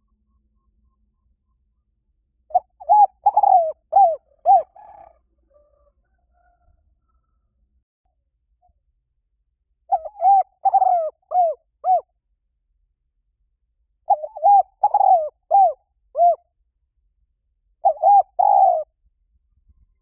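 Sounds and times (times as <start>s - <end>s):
dove cooing: 2.5s - 5.9s, 9.9s - 12.1s, 14.1s - 16.4s, 17.8s - 19.0s.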